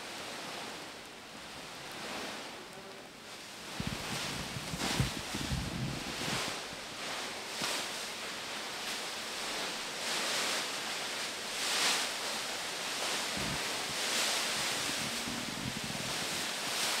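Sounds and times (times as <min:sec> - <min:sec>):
plastic bags rustling: 0:03.6 - 0:17.0.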